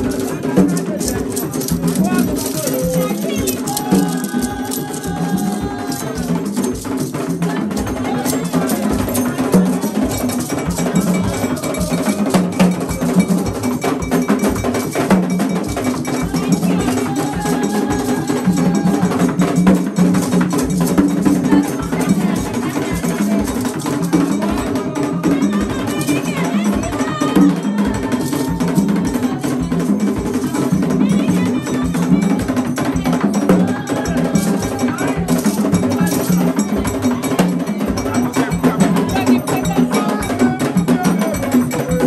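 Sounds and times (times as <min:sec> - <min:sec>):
hand drums: 0:00.0 - 0:42.0
struck metal bell: 0:05.3 - 0:17.7.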